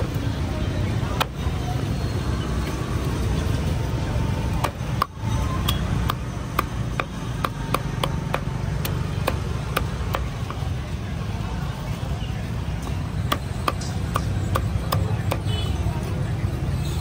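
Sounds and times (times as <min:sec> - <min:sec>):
low street noise rumble: 0:00.0 - 0:17.0
cleaver chopping on cutting block: 0:04.6 - 0:10.6, 0:13.2 - 0:15.5.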